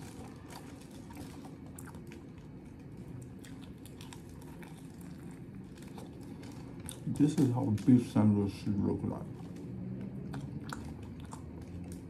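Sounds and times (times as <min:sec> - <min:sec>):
person chewing a sandwich: 0:00.0 - 0:08.2, 0:09.2 - 0:12.0.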